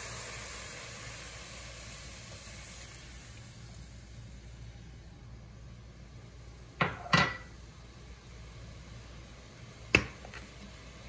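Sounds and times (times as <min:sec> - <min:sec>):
dishes knocking: 0:06.8 - 0:07.5.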